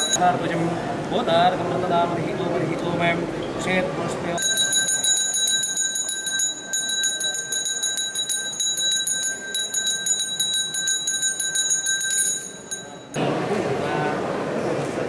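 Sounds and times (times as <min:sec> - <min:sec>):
hand bell ringing rapidly: 0:00.0 - 0:00.2, 0:04.4 - 0:13.2.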